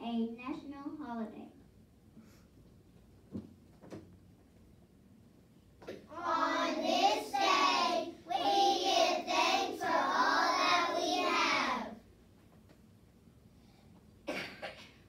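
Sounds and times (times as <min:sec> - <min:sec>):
children singing: 0:06.1 - 0:12.0.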